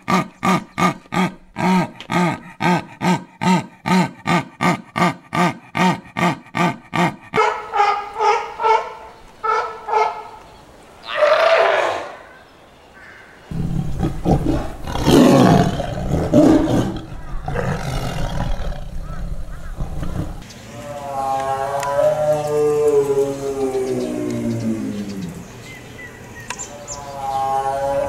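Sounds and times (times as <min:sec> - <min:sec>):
jaguar rasping grunts: 0:00.0 - 0:07.4
sea lions barking: 0:00.0 - 0:10.3, 0:20.7 - 0:25.6.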